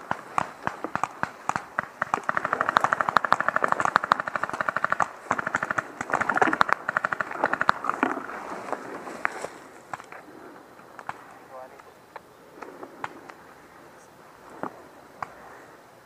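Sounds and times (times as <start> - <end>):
paintball markers firing: 0.0 - 8.2, 10.9 - 11.9.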